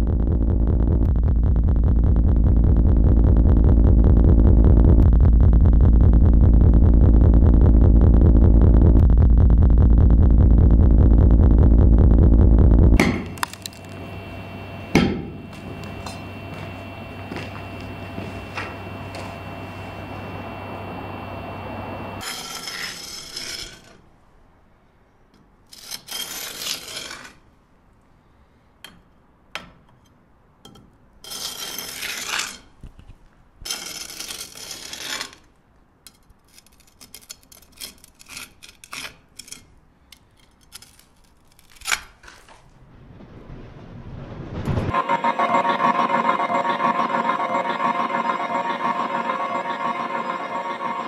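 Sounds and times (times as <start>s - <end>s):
steady hum with faint tone: 0.0s - 25.6s.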